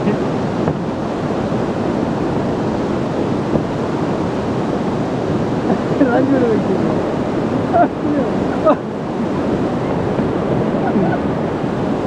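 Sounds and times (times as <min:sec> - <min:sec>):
river rushing over rocks: 0:00.0 - 0:12.0.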